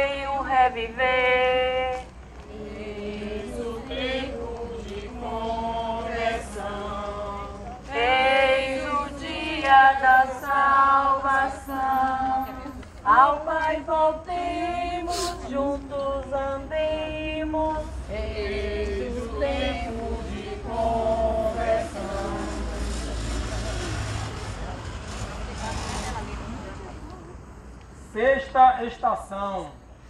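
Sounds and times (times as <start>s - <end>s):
group singing a hymn: 0.0s - 24.0s.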